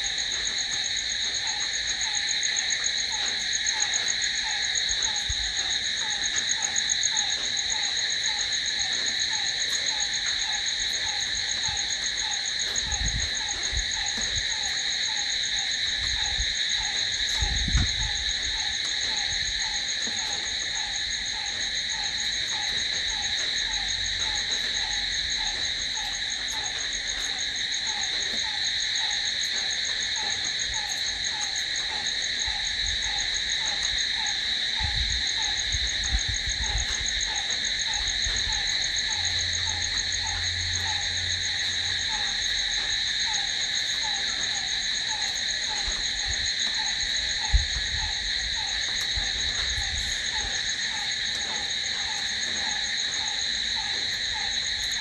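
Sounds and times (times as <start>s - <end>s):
crickets trilling: 0.0s - 55.0s
low pulsed insect call: 0.0s - 55.0s.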